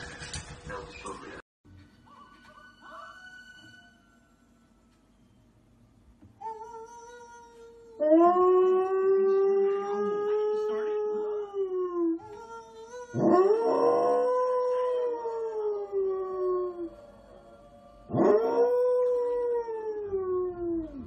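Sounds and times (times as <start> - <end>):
dog howling: 8.0 - 12.2, 13.1 - 21.0.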